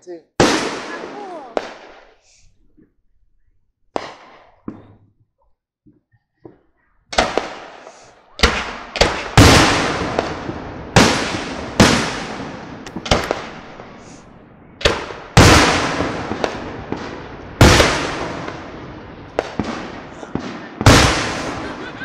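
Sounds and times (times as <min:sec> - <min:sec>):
firework booms: 0:00.4 - 0:02.1, 0:07.1 - 0:22.0
firework pops: 0:12.8 - 0:13.5.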